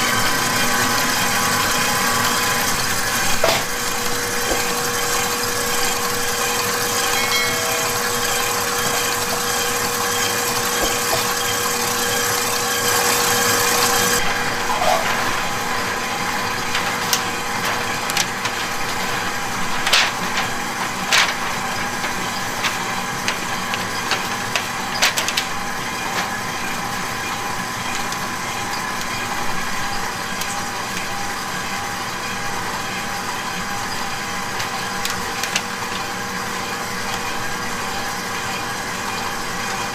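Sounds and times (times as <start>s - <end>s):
kitchen hum: 0.0s - 39.9s
stand mixer whisking: 0.0s - 39.9s
parchment paper rustling: 14.0s - 26.7s.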